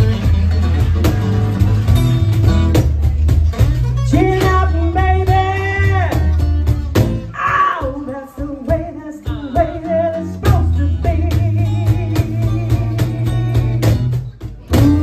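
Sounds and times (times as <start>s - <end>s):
acoustic guitars strumming: 0.0s - 15.0s
woman singing: 4.1s - 6.3s, 7.3s - 13.8s, 14.7s - 15.0s.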